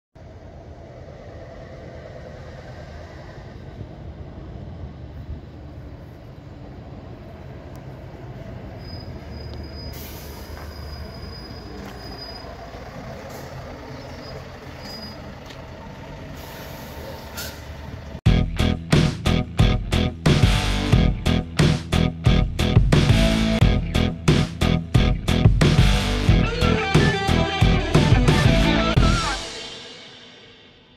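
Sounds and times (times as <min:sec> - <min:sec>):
truck engine running: 0:11.1 - 0:29.2.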